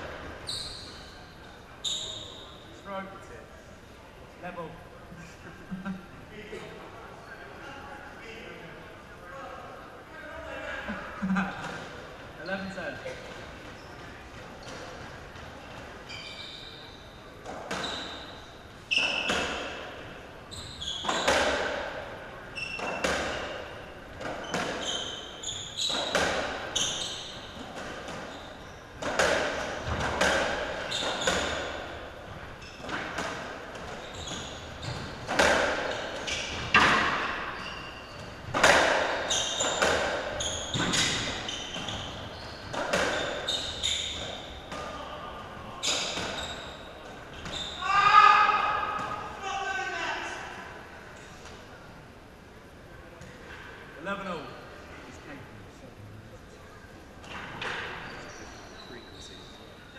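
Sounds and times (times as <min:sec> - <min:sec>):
ball hitting rackets and walls: 0:17.4 - 0:18.3, 0:18.9 - 0:20.1, 0:20.7 - 0:45.1, 0:45.8 - 0:49.3.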